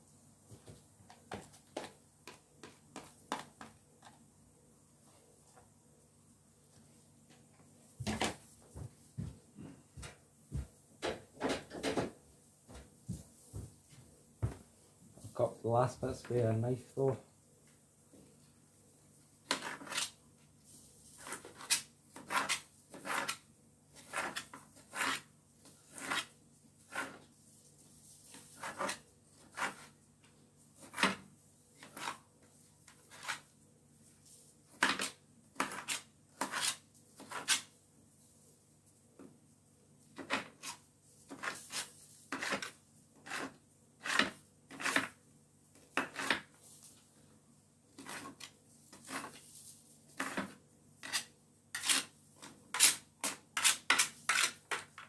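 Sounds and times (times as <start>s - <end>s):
knife chopping onion: 19.5s - 20.2s, 21.2s - 23.4s, 24.0s - 26.3s, 28.3s - 29.9s, 30.8s - 31.2s, 34.7s - 37.7s, 40.2s - 45.2s, 45.8s - 46.6s, 48.0s - 49.4s, 50.2s - 55.0s.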